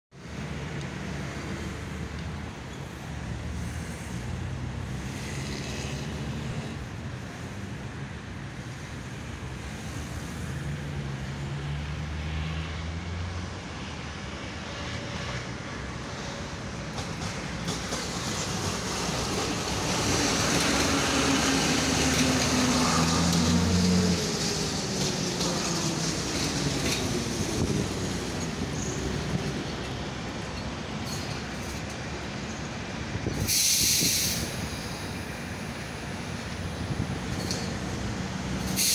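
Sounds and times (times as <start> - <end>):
steel wheels on rails: 16.2 - 38.9.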